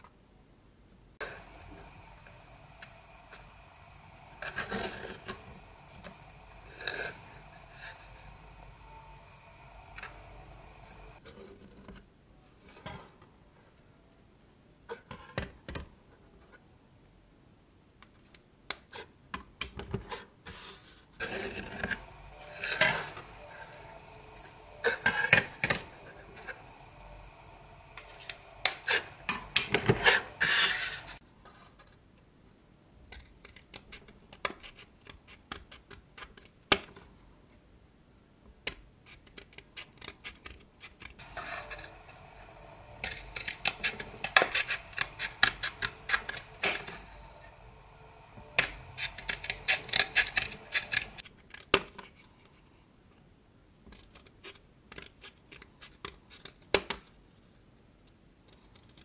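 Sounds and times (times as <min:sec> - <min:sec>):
scissors cutting cardboard: 0:48.4 - 0:52.1.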